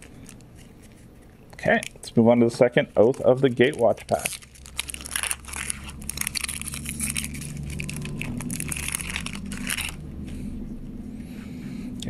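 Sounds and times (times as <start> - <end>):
foil wrapper crinkling: 0.0 - 10.2
steady low hum: 0.0 - 12.0.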